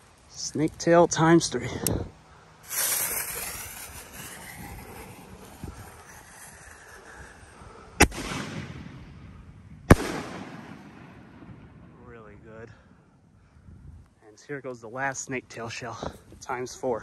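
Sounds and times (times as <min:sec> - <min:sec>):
firework lift charge bang: 0:02.6 - 0:07.2
fuse hissing: 0:02.6 - 0:07.6
firework shell bursting: 0:02.6 - 0:08.7.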